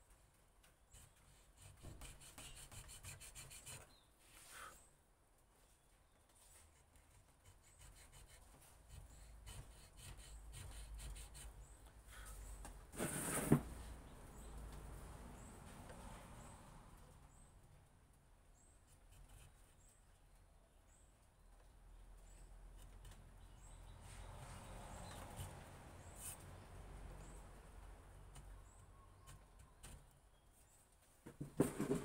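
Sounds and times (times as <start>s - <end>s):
hand tool scratching wood: 0.9s - 4.7s, 6.6s - 12.4s
scrape ending in knock: 12.9s - 13.8s.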